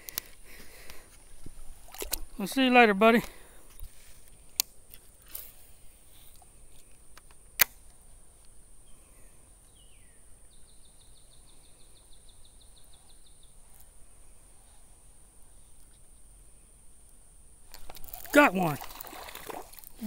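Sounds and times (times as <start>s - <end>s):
quiet creekside background: 0.0s - 20.0s
sharp click: 7.2s - 7.9s.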